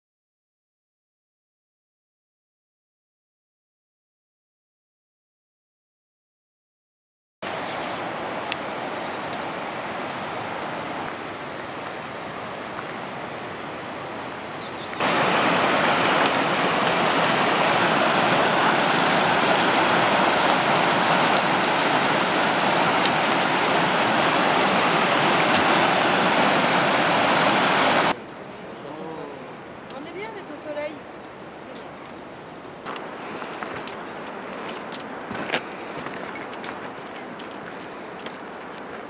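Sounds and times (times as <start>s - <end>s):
stream rushing over rocks: 7.4s - 13.9s, 15.0s - 28.2s.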